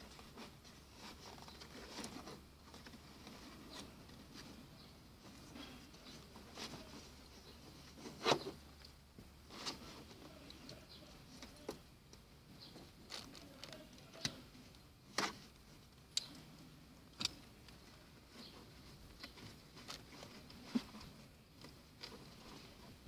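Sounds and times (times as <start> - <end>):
buckles clicking and knocking: 17.1 - 17.9.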